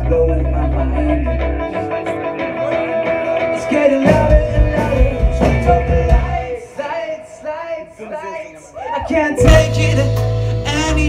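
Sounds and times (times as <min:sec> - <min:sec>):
deep bass: 0:00.0 - 0:01.7, 0:04.1 - 0:06.4, 0:09.4 - 0:11.0
guitars: 0:00.0 - 0:07.0, 0:09.0 - 0:11.0
drums: 0:00.0 - 0:07.6, 0:08.8 - 0:11.0.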